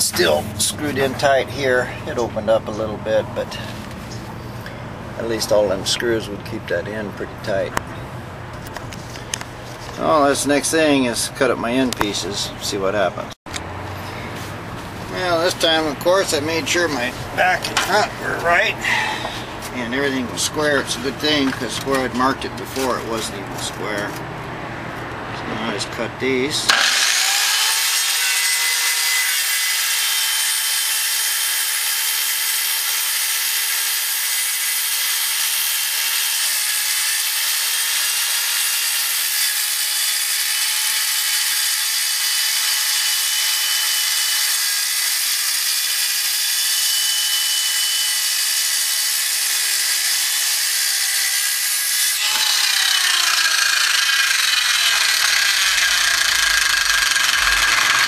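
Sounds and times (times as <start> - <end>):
circular saw cutting plywood: 26.7 - 58.0.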